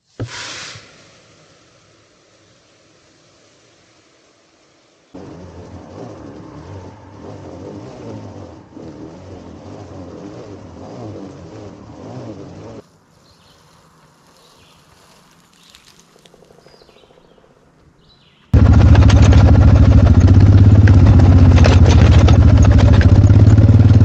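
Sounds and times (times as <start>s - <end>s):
seed spreader whirring and rattling: 5.2s - 12.9s, 18.6s - 24.0s
bird chirps: 13.2s - 18.6s.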